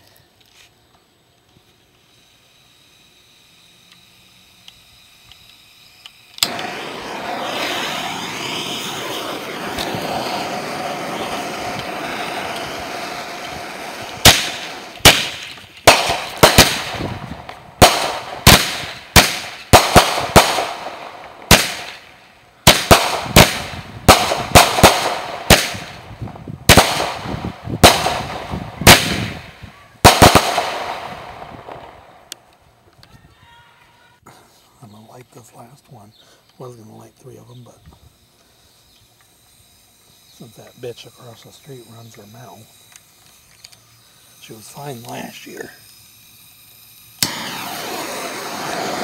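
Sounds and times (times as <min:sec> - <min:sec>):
firework hissing: 0:00.0 - 0:49.0
firework bangs: 0:06.4 - 0:32.3, 0:47.0 - 0:49.0.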